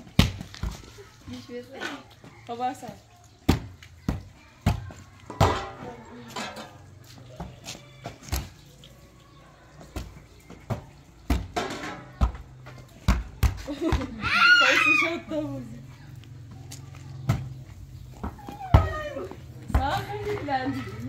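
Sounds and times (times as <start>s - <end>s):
people laughing: 13.6s - 14.2s.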